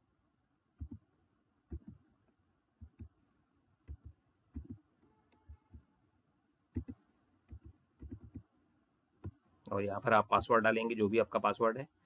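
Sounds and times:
keyboard typing: 0:00.8 - 0:01.0, 0:01.7 - 0:02.0, 0:02.8 - 0:03.2, 0:03.8 - 0:05.9, 0:06.7 - 0:08.5.

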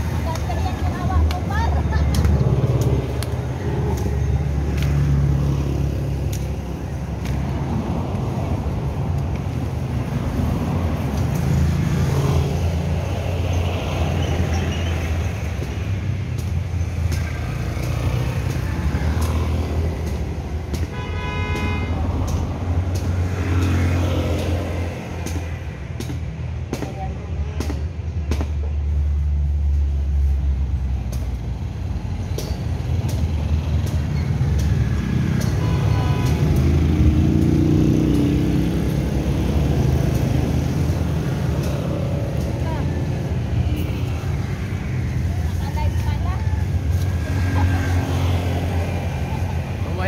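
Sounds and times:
cars and motorcycles passing: 0:00.0 - 0:50.0
vehicle horn: 0:20.9 - 0:22.0, 0:35.5 - 0:36.5.

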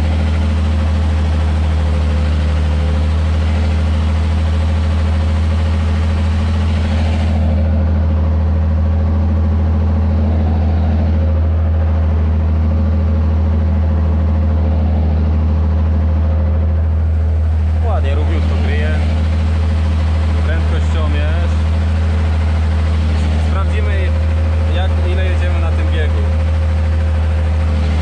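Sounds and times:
tractor diesel engine running: 0:00.0 - 0:28.0.

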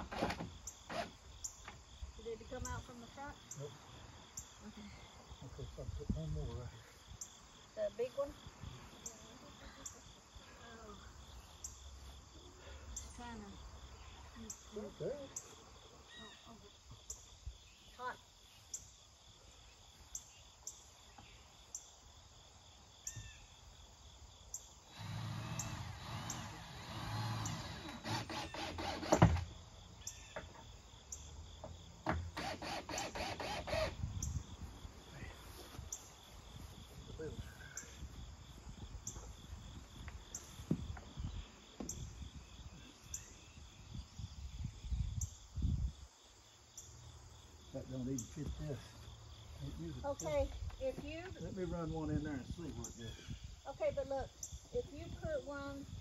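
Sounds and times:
insects chirping: 0:00.0 - 0:56.0
cordless drill motor running: 0:24.9 - 0:29.5, 0:32.4 - 0:34.0
drill rapid clicking: 0:25.0 - 0:29.4, 0:32.4 - 0:34.0.

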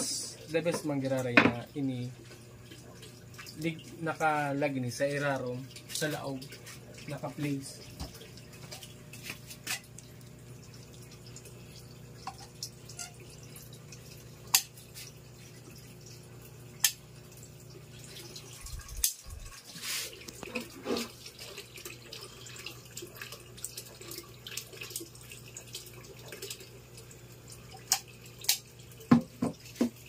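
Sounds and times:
steady low hum: 0:01.7 - 0:19.6.

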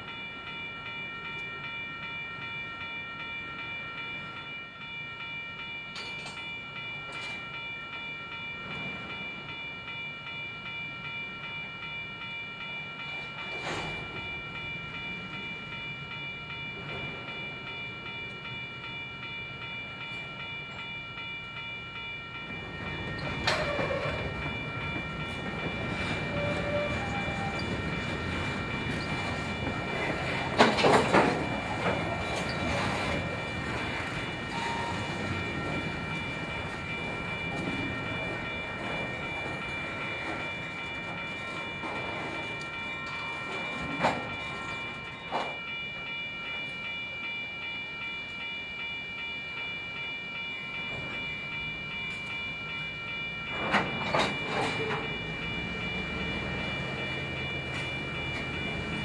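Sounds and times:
high-pitched ringing tone: 0:00.0 - 0:59.0
metallic clanks from train cars: 0:05.9 - 0:07.6, 0:13.0 - 0:15.4, 0:22.4 - 0:47.0, 0:50.8 - 0:59.0
freight train rumble: 0:13.0 - 0:49.1, 0:49.8 - 0:59.0.

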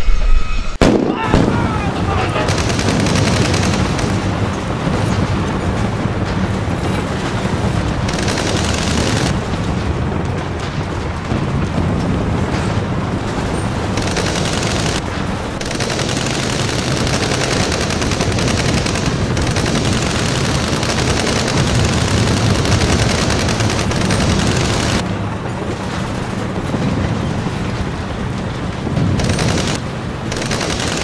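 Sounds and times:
automatic rifle fire: 0:00.8 - 0:04.5, 0:08.1 - 0:09.4, 0:14.0 - 0:25.0, 0:29.2 - 0:31.0.

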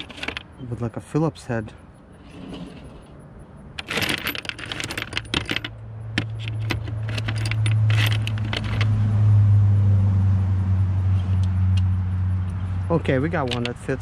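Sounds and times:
screwdriver bits clinking: 0:03.8 - 0:08.9.

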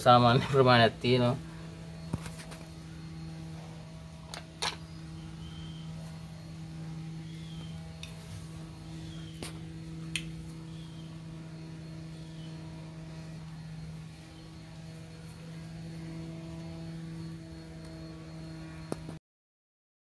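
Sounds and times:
motor humming: 0:00.0 - 0:19.2
sharp click: 0:09.4 - 0:10.4.

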